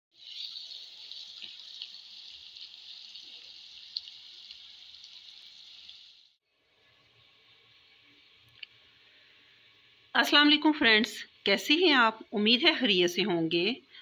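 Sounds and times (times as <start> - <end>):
vegetables sizzling in hot oil: 0.1 - 8.8.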